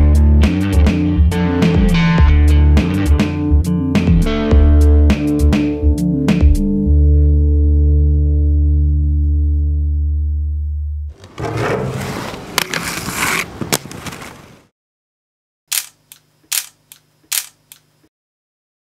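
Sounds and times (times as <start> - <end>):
skate wheels rolling on concrete: 11.1 - 14.7
camera shutter clicks: 15.7 - 17.9.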